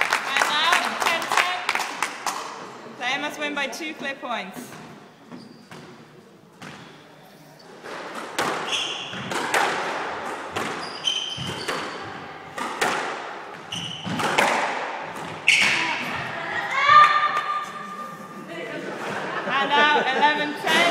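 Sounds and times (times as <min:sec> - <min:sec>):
shoes squeaking on wooden court: 0:04.0 - 0:16.4
squash ball hits echoing: 0:07.8 - 0:17.8.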